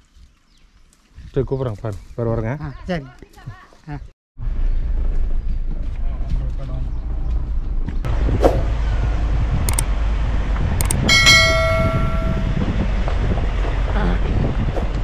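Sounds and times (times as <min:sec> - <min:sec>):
low rumble: 0:04.4 - 0:15.0
bright bell chime: 0:11.1 - 0:12.6.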